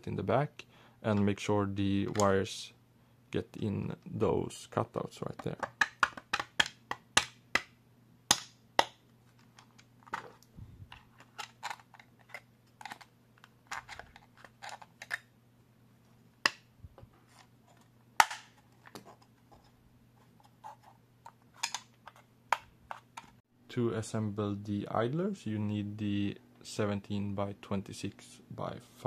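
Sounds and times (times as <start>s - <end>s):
plastic parts clicking together: 8.3s - 15.3s, 21.2s - 23.4s.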